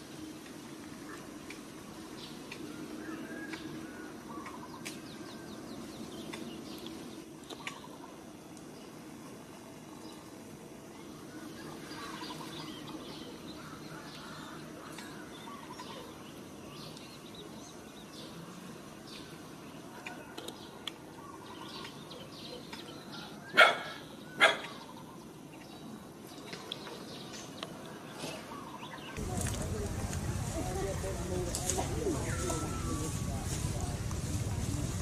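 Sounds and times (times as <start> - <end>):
loud animal barks: 23.5 - 24.8.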